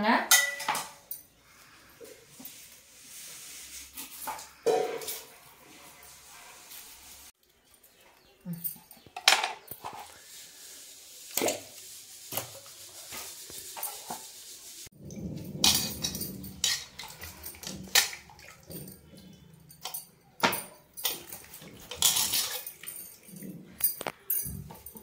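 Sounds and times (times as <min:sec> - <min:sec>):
water splashing: 0:16.6 - 0:19.4.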